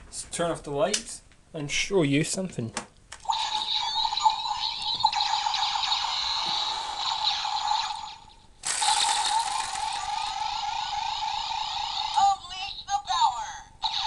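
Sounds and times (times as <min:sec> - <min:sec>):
toy electronic tone: 0:03.3 - 0:12.4.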